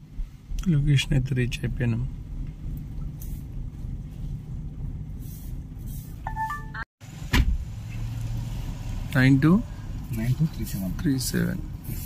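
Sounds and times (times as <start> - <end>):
electronic phone chime: 6.3 - 6.9.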